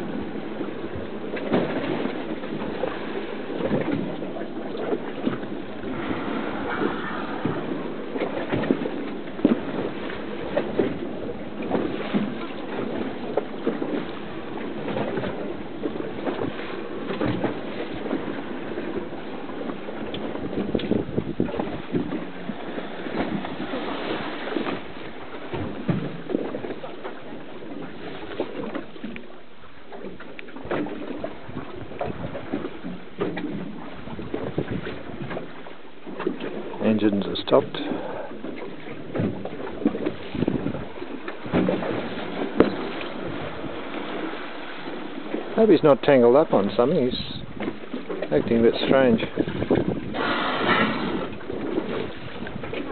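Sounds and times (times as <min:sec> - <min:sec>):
wind buffeting microphone: 0:00.0 - 0:28.8, 0:30.6 - 0:52.9
water washing: 0:00.0 - 0:29.3.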